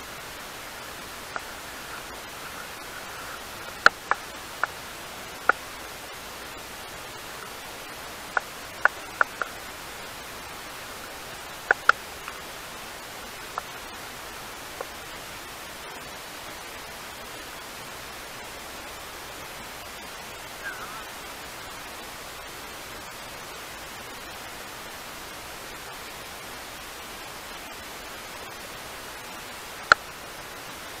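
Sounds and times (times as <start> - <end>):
outdoor background hiss: 0.0 - 31.0
faint chirp: 20.4 - 21.2.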